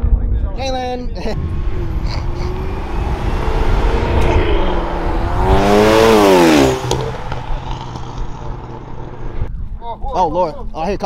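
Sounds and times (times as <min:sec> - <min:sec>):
low engine rumble: 0:01.2 - 0:09.5
car engine revving: 0:01.3 - 0:09.5.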